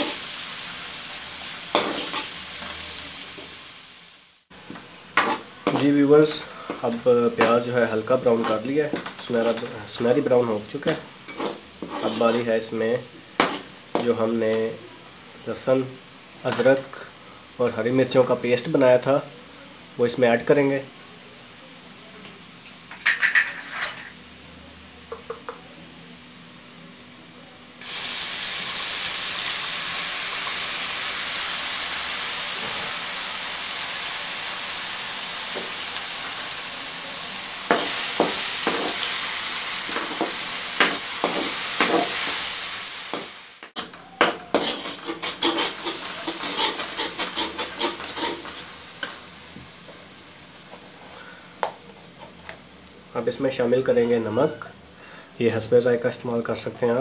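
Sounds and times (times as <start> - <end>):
paste sizzling in hot oil: 0.0 - 20.6, 27.8 - 53.0
metal ladle scraping a pan: 1.7 - 2.8, 5.2 - 7.5, 11.3 - 12.5, 23.0 - 24.2, 43.8 - 48.8.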